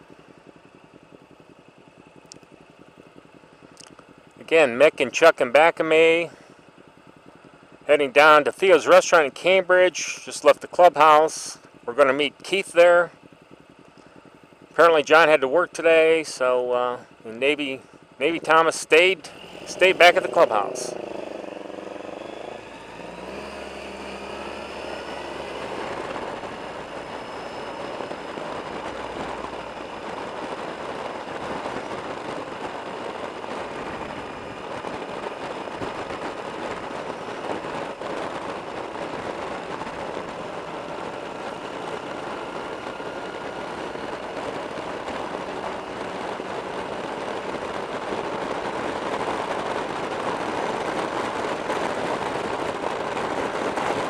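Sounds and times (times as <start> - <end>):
wind rushing over microphone: 16.0 - 54.0
motorcycle engine accelerating: 16.6 - 54.0.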